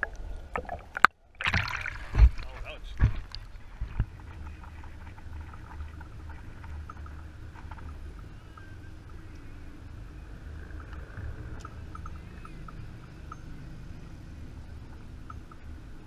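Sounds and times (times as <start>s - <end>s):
boat engine low rumble: 0.0s - 16.0s.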